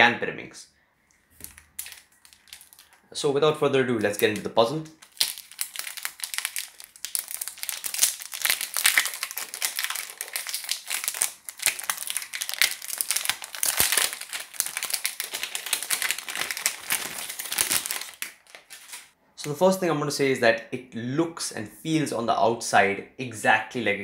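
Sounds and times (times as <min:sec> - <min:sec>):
plastic film crinkling: 0:01.4 - 0:03.1, 0:03.9 - 0:19.2.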